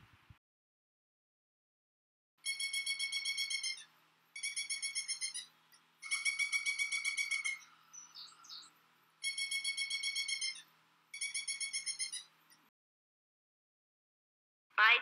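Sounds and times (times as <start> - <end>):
faint high bird chirps: 2.4 - 12.7
woodpecker trilling: 2.4 - 12.7.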